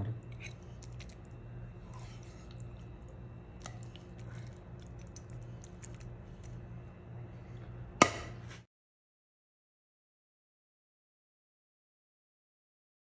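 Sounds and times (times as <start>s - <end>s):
steady low hum: 0.0s - 8.7s
spoon squishing soft food: 0.2s - 7.6s.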